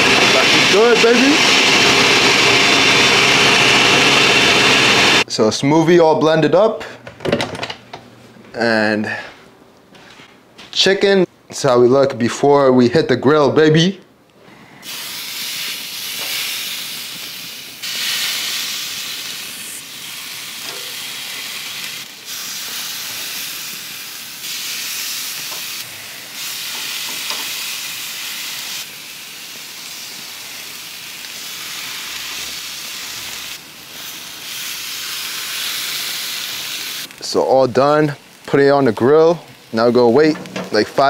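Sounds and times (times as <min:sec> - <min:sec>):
chicken sizzling on grill: 0:00.0 - 0:05.2, 0:14.8 - 0:41.0.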